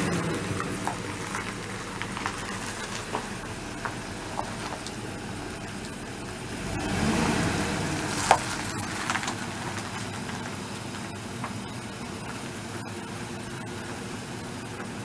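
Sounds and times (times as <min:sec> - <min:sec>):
tyres crunching over gravel: 0:00.0 - 0:15.0
van engine running low: 0:00.0 - 0:15.0.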